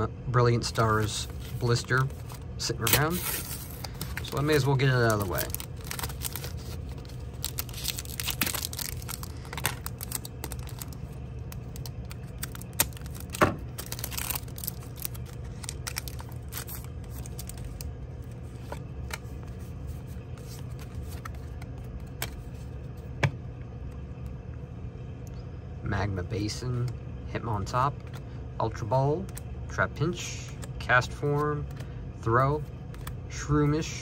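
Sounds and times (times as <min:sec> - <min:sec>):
paper rustling: 0:00.8 - 0:11.0, 0:11.8 - 0:22.7
packaging tearing and crinkling: 0:00.9 - 0:17.9.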